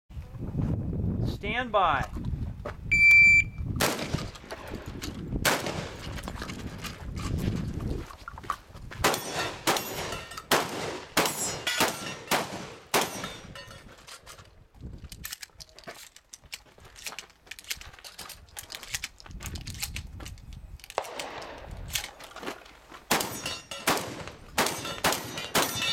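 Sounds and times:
electronic timer beep: 0:02.9 - 0:03.6
shotgun shots: 0:03.8 - 0:06.1, 0:09.0 - 0:13.5, 0:21.0 - 0:22.2, 0:23.1 - 0:25.9.

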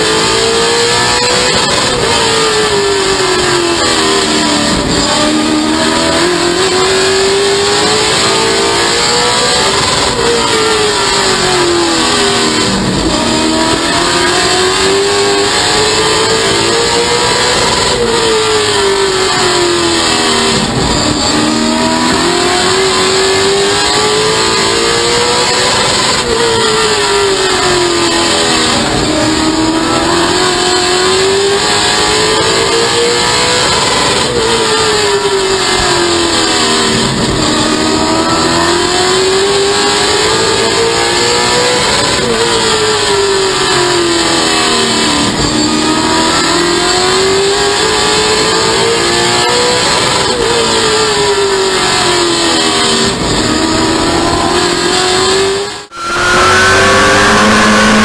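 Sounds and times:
racing car engine: 0:00.0 - 0:58.0.

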